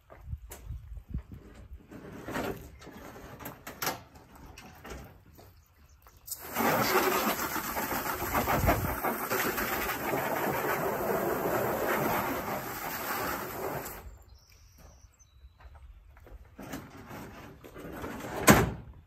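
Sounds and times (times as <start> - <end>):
water spraying against plastic: 6.2 - 14.2.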